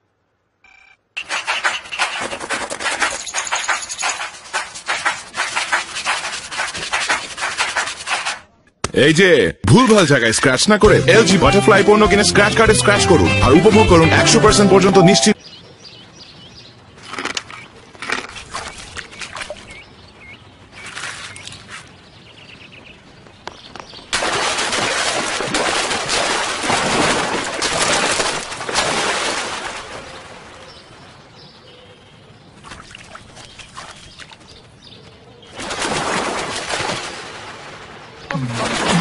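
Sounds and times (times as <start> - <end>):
rushing noise: 1.2 - 8.4
body splashing into water: 24.1 - 30.4, 35.5 - 39.0.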